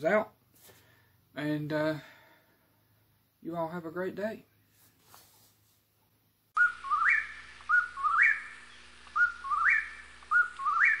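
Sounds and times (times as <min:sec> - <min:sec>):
whistled call: 0:06.6 - 0:11.0.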